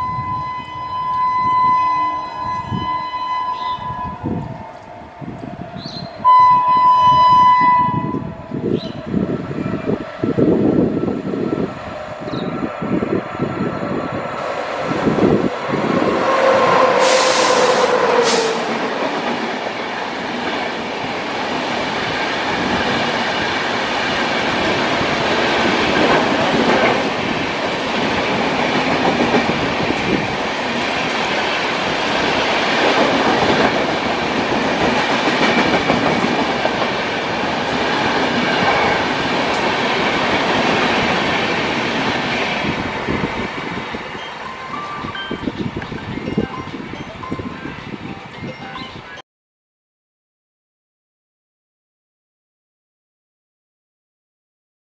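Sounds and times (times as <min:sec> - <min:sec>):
train horn blast: 0:00.0 - 0:04.3, 0:06.2 - 0:08.3, 0:16.2 - 0:18.8
train wheels rushing on rails: 0:08.2 - 0:47.4.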